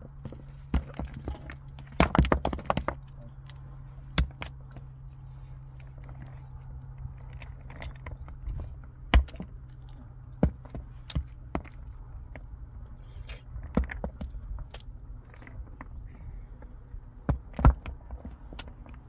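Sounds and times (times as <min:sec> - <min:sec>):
steady low hum: 0:00.0 - 0:19.0
sharp knocks and cracks: 0:00.2 - 0:04.9, 0:07.1 - 0:12.5, 0:13.2 - 0:16.0, 0:17.2 - 0:19.0.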